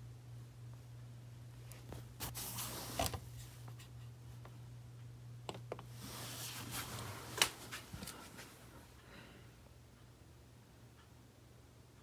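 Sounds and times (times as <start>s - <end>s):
steady low hum: 0.0s - 12.0s
fabric rustling on microphone: 1.8s - 3.6s, 6.0s - 8.6s.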